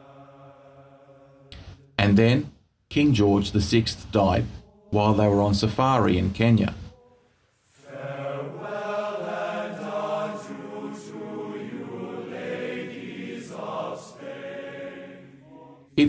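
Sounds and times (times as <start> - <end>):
choir singing long held notes: 0.0 - 1.6, 4.6 - 5.6, 6.8 - 16.0.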